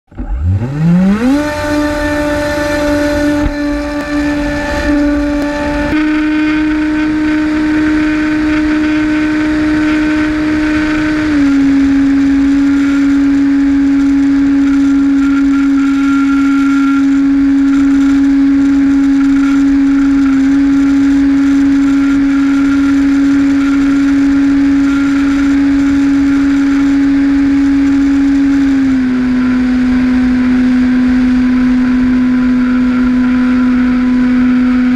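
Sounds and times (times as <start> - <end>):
electric motor and propeller whine: 0.1 - 34.9
air rushing noise: 1.6 - 8.4.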